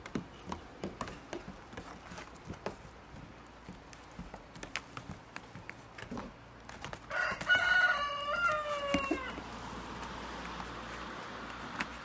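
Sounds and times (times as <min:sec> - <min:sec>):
hooves tapping on a roof: 0:00.0 - 0:12.0
rooster crowing: 0:07.1 - 0:09.5.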